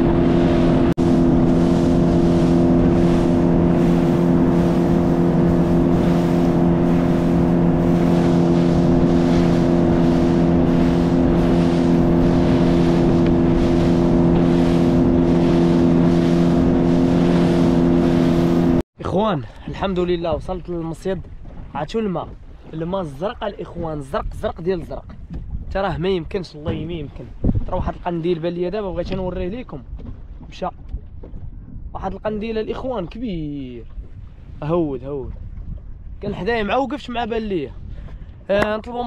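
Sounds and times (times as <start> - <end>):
water rushing: 0.0 - 24.1
motorboat engine running: 0.0 - 37.1, 37.7 - 39.0.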